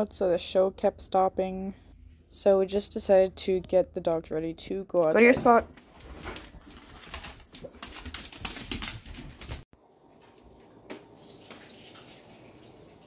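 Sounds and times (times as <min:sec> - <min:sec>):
dogs moving on hard floor: 0:05.2 - 0:09.6.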